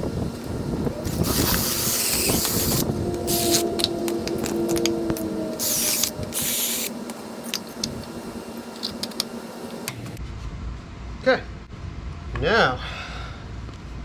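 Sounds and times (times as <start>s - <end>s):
drill cutting through wood: 1.0s - 6.9s
drill motor hum: 1.0s - 9.9s.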